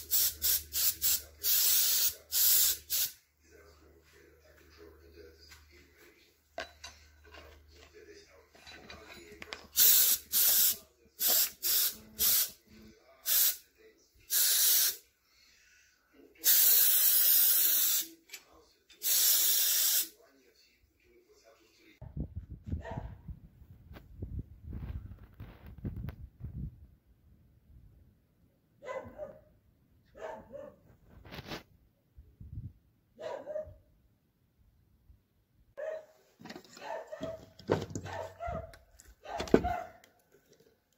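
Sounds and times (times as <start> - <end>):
dog barking: 22.8 - 23.2, 28.8 - 30.8, 33.2 - 33.9, 35.8 - 36.2, 36.8 - 40.0.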